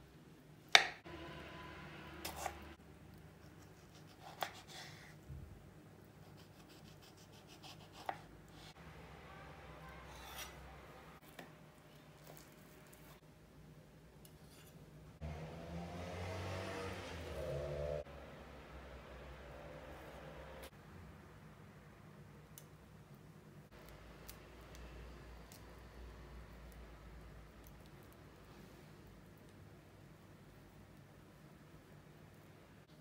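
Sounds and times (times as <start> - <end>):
knife slicing fruit: 2.2 - 2.7, 3.4 - 5.0, 6.2 - 8.7, 10.1 - 10.6.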